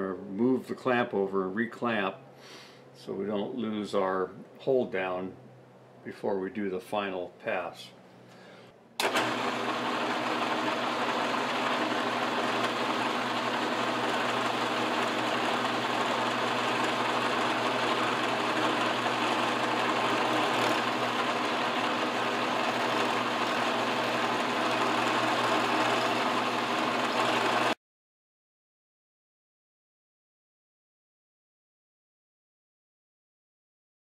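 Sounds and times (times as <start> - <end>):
end mill cutting metal: 9.0 - 27.8
milling machine motor hum: 9.0 - 27.8.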